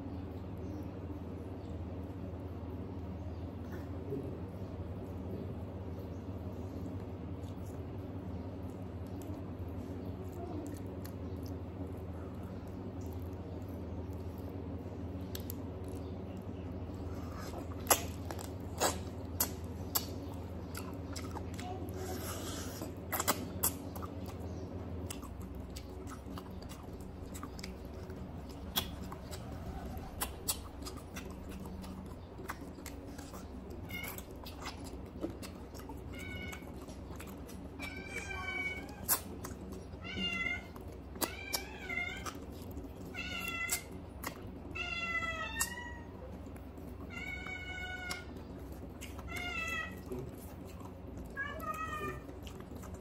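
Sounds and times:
person chewing food: 6.8s - 53.0s
cat meowing: 37.8s - 39.0s, 47.1s - 48.2s, 49.3s - 50.1s, 51.4s - 52.3s.

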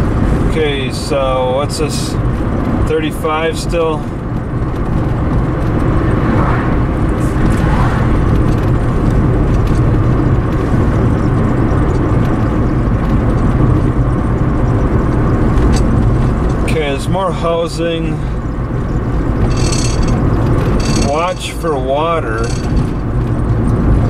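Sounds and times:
road and engine noise: 0.0s - 24.0s
oncoming car passing: 4.7s - 9.6s.

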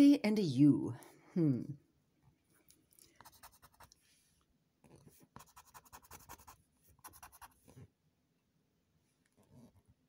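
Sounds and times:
stick scratching lottery ticket: 5.4s - 7.5s.

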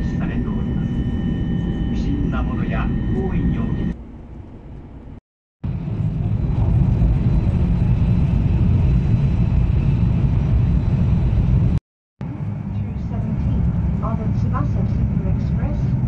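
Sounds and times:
faint high whine: 0.0s - 4.0s
train cabin low rumble: 0.0s - 16.0s.

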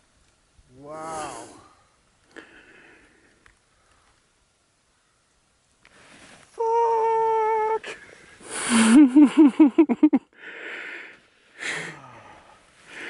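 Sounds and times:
man saying ooh: 0.7s - 1.8s, 6.6s - 8.0s, 11.8s - 12.4s
man laughing loudly: 8.6s - 10.3s.

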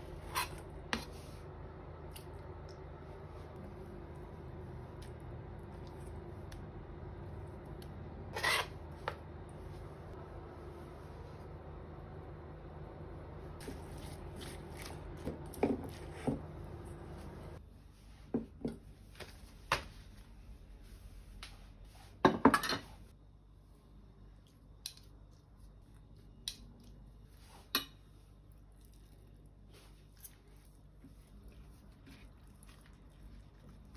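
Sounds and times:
low hum: 0.0s - 17.9s.

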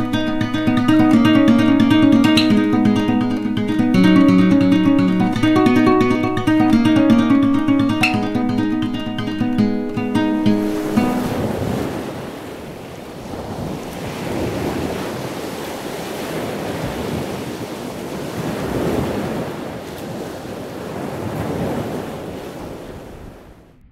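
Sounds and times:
ocean surf washing onto a beach: 0.0s - 23.7s
wind noise on the microphone: 10.6s - 23.9s.

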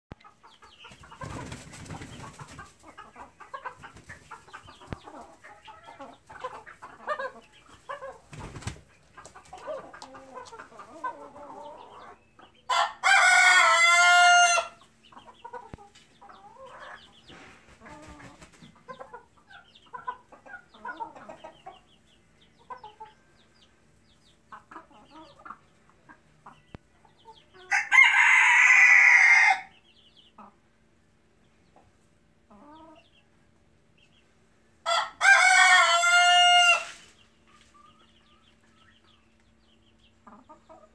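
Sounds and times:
chickens clucking softly: 0.1s - 28.0s, 29.6s - 40.9s
rooster crowing: 12.7s - 14.8s, 27.7s - 29.7s, 34.8s - 36.9s.

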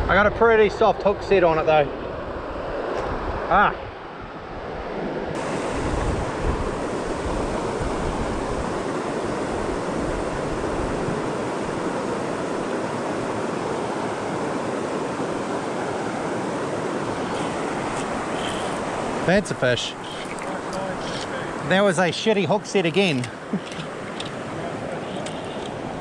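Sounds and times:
river water rushing: 5.4s - 26.0s.

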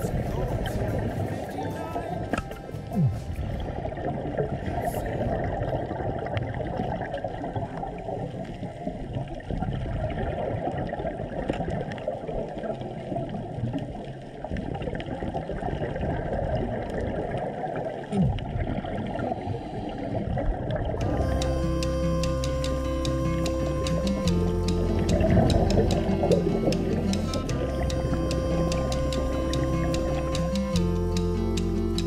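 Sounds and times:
music: 0.0s - 3.9s, 21.0s - 32.0s
underwater water and bubbles gurgling: 0.0s - 32.0s.

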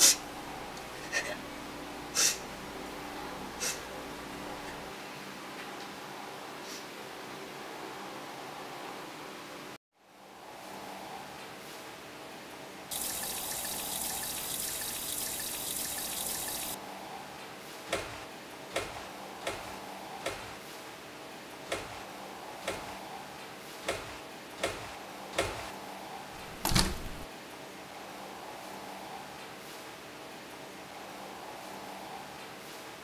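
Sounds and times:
kitchen tap running: 12.9s - 16.8s
door knock and rattle: 26.4s - 27.3s.

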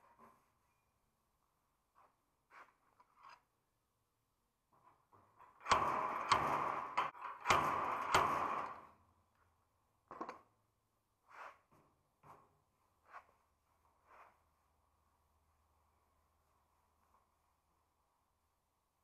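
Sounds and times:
crackling welds: 5.4s - 9.0s.

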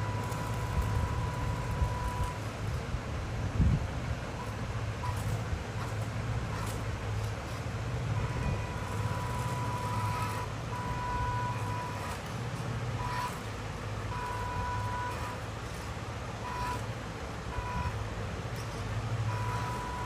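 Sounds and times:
model truck motor drone: 0.0s - 20.0s.

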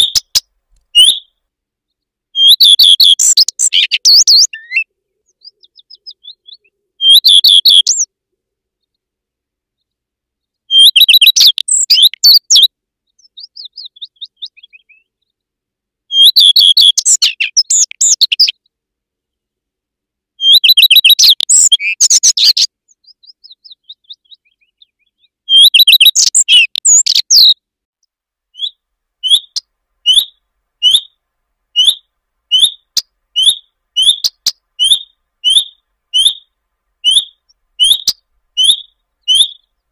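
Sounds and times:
bird rising whistled calls: 0.0s - 1.3s, 2.4s - 8.1s, 28.6s - 31.2s, 31.8s - 39.7s
bird song warbling: 0.0s - 8.1s, 9.7s - 15.4s, 16.1s - 19.6s, 20.4s - 27.6s, 28.5s - 39.9s.

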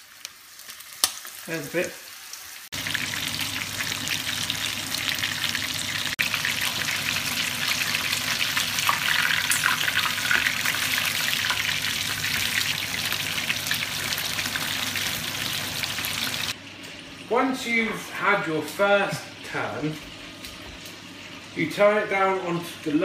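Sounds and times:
chicken sizzling in hot oil: 0.0s - 17.3s.

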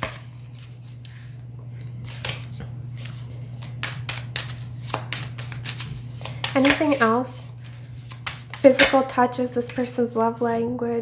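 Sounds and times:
cards shuffling: 0.0s - 1.3s, 1.9s - 9.0s.

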